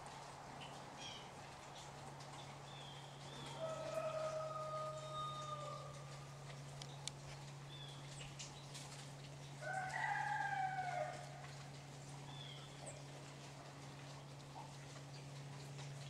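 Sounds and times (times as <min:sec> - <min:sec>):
low steady hum: 0:00.0 - 0:16.0
light ticks: 0:05.8 - 0:16.0.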